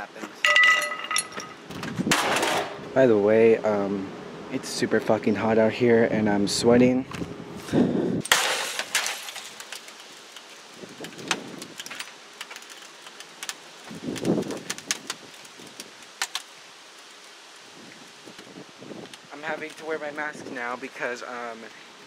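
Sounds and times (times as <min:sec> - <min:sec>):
monitor casing cracking clicks: 0:09.5 - 0:16.5.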